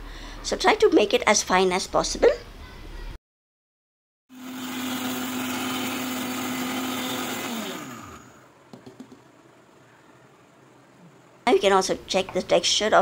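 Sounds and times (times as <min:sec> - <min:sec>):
mixer grinder motor whine: 0:04.3 - 0:08.5.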